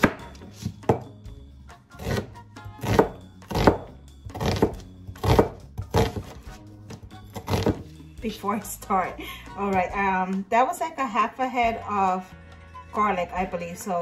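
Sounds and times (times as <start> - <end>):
knife slicing onion on board: 2.0 - 8.0.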